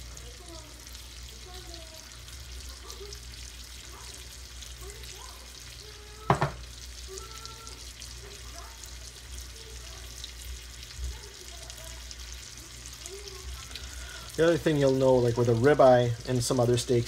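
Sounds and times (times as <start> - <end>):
steak sizzling in a skillet: 0.0 - 17.0
sharp knock: 6.3 - 6.6.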